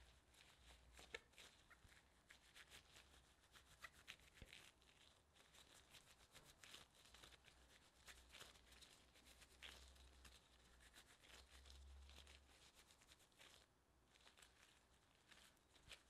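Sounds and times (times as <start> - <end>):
plastic gloves crinkling: 0.0 - 16.0.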